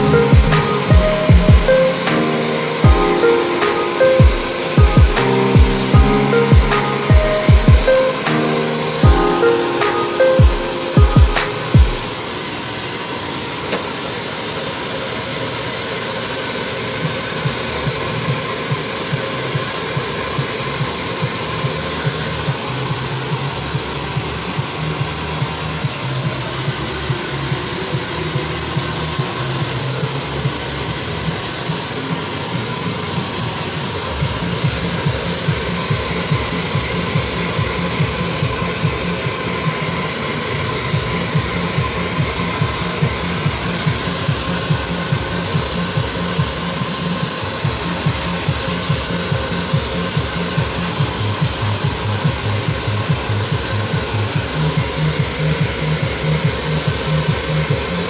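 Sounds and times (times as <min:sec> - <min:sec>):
low regular pulsing beat: 0:00.0 - 0:12.2, 0:34.2 - 0:58.0.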